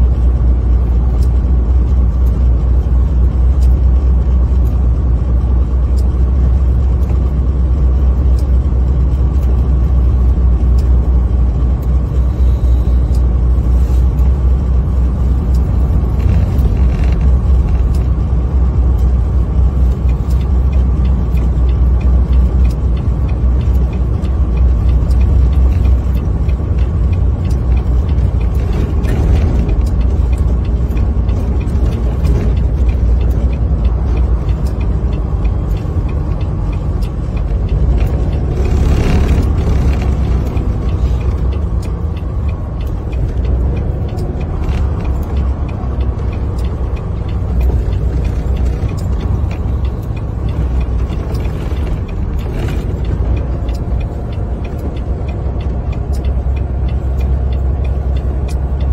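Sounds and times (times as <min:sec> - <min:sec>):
tire chains ticking: 0:00.0 - 0:58.9
truck engine and road rumble: 0:00.0 - 0:58.9.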